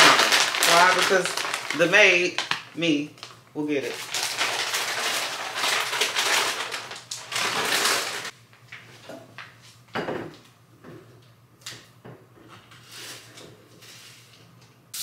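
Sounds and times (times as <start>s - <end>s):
snack packets crinkling: 0.0s - 8.3s.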